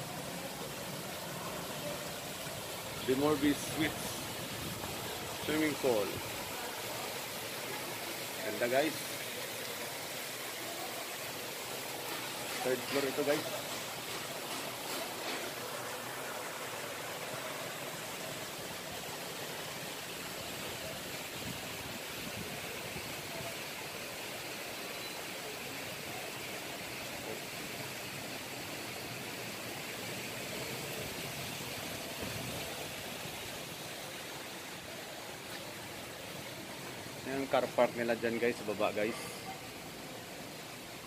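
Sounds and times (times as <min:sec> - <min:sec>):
water pouring from wall cascade: 0:00.0 - 0:41.0.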